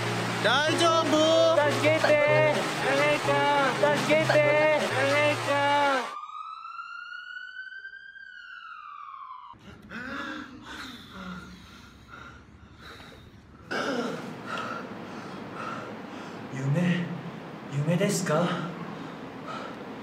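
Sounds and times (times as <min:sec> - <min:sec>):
siren-like electronic tone: 0:04.8 - 0:09.6
breathing: 0:09.6 - 0:13.4, 0:18.9 - 0:19.8.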